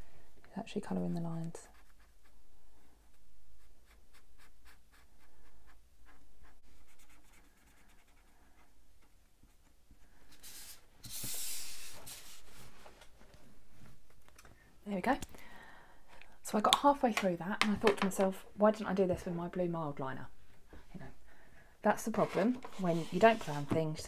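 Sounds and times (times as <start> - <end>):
felt pen scratching on paper: 1.6 - 2.4, 3.0 - 9.8.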